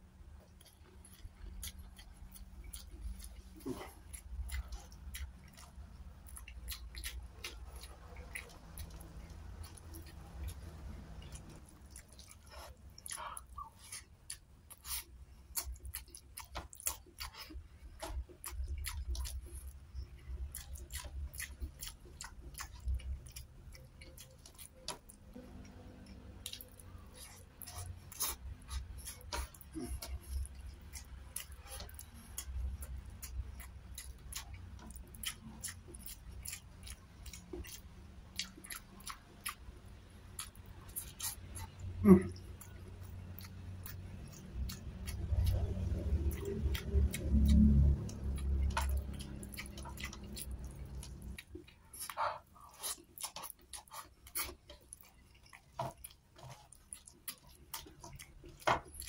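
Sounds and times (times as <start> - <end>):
chewing and lip-smacking: 0.4 - 59.0
low rumble: 44.9 - 51.3.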